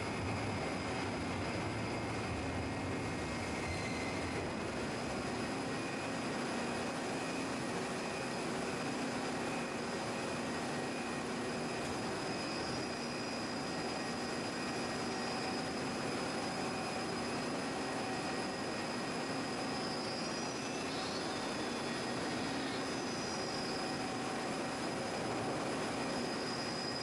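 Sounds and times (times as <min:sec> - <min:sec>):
faint high steady tone: 0:07.3 - 0:27.0.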